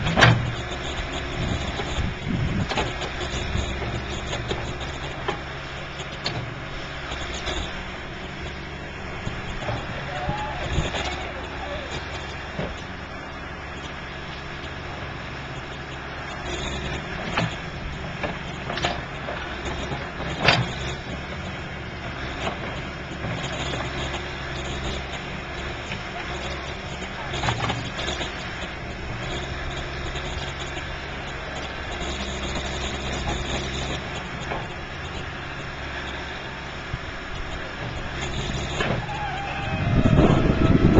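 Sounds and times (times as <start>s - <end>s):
diesel engine running: 0.0s - 40.9s.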